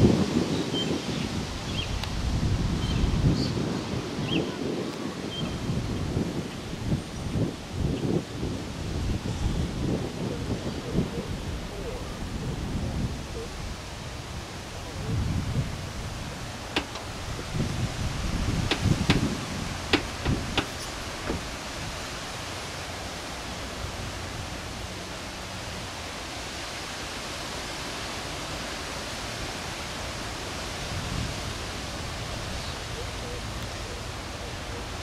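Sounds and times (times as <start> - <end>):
freight train wheels on rail: 16.3 - 17.6, 18.6 - 21.7
sharp clacks of train cars: 16.7 - 17.2, 18.6 - 19.3, 19.9 - 21.5.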